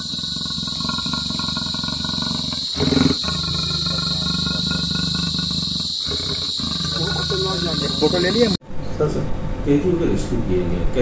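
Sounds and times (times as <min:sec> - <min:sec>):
leopard growling: 0:00.0 - 0:08.6.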